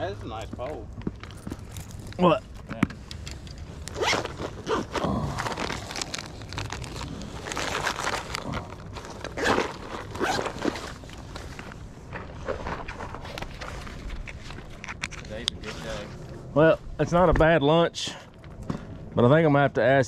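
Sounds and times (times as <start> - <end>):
rustling and crunching: 0.6 - 16.4.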